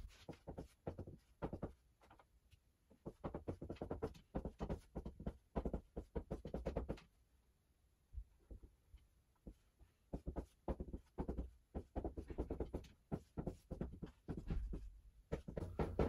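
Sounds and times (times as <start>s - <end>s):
marker writing on whiteboard: 0.0s - 1.8s, 2.9s - 7.0s, 9.4s - 16.0s.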